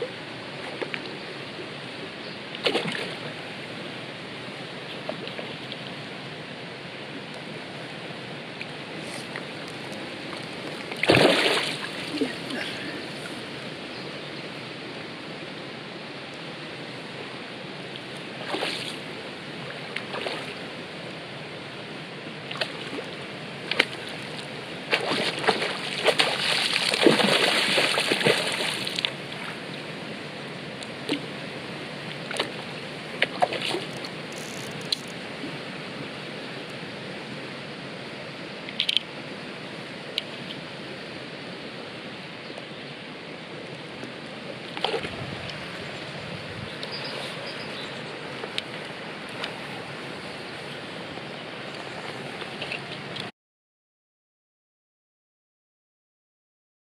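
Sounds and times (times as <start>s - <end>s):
flowing river water: 0.0s - 53.3s
fish splashing in water: 10.9s - 12.6s, 24.9s - 29.1s.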